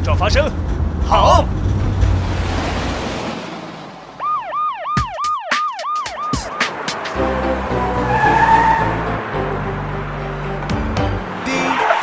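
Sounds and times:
cartoon police siren yelping: 4.2s - 6.7s
children's song music: 5.0s - 12.0s
sharp whooshes: 5.5s - 7.5s.

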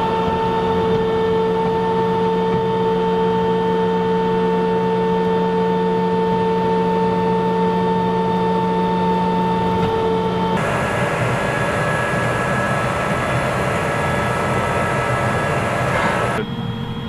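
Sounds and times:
tank engine rumbling: 9.4s - 17.0s
high whining tones: 10.2s - 17.0s.

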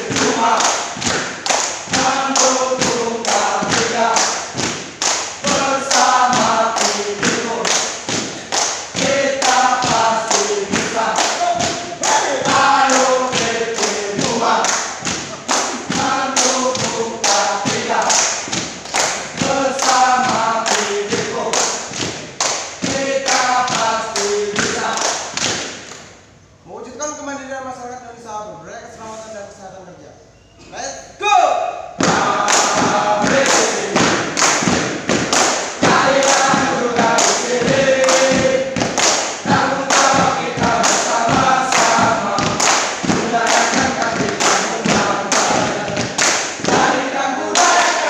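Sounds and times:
men chanting in unison: 0.0s - 1.2s, 1.8s - 4.6s, 5.4s - 22.0s, 22.8s - 25.4s, 32.0s - 34.6s, 35.7s - 48.0s
people clapping: 0.0s - 26.2s, 32.0s - 48.0s
feet stamping: 32.0s - 47.8s.

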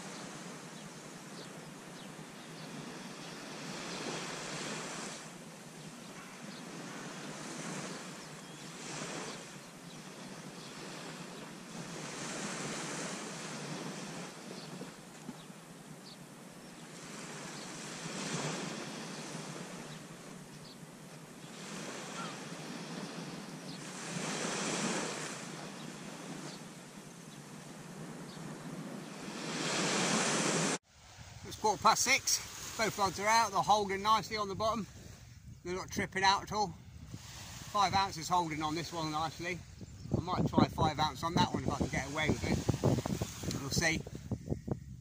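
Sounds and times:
small surf breaking: 2.6s - 15.6s, 16.7s - 35.4s, 36.2s - 39.9s, 41.2s - 44.4s
wind on microphone: 36.7s - 37.8s, 39.4s - 45.0s.

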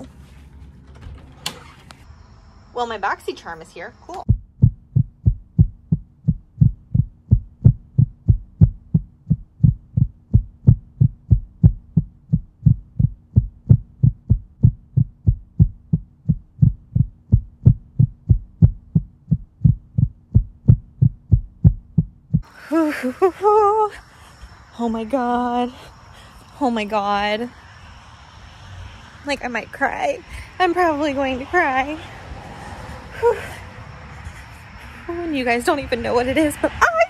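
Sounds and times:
heartbeat low beats: 4.2s - 22.5s.

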